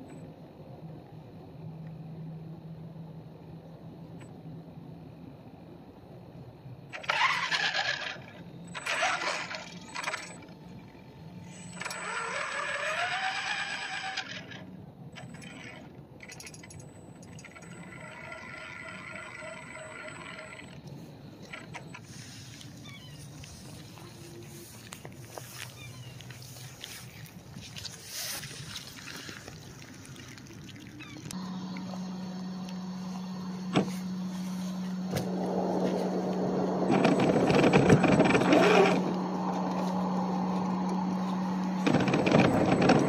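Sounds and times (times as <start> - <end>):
toy truck motor whining: 6.9 - 16.0, 17.2 - 26.1, 36.9 - 43.0.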